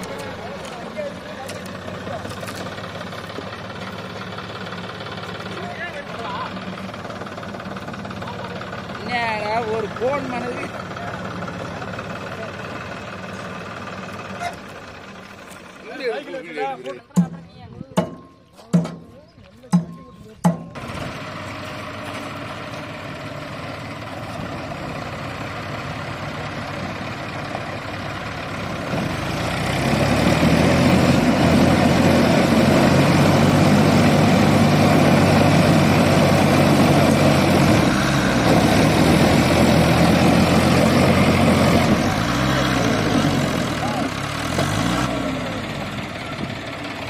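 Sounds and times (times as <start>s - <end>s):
tractor engines under load: 0.0s - 47.0s.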